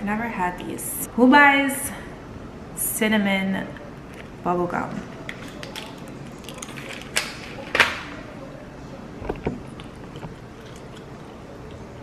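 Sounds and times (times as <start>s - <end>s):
plastic and foil crinkling: 5.2s - 7.7s.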